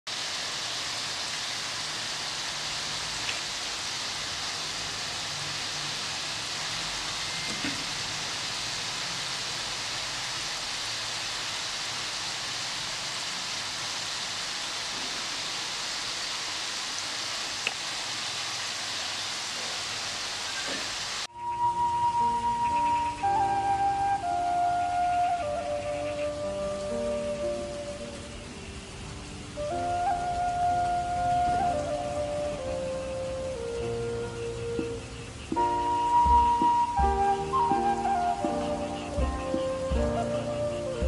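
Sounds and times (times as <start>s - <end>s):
food sizzling in a pan: 0.1s - 21.5s.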